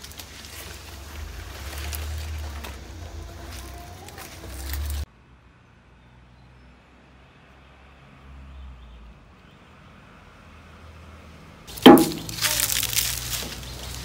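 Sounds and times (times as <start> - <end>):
dry palm fronds crackling: 0.0 - 5.1, 11.7 - 14.0
sharp knock: 11.8 - 12.6.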